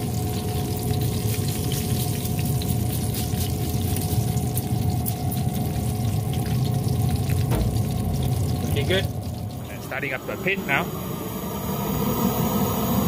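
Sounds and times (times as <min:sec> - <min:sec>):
pellet grill humming: 0:00.0 - 0:13.0.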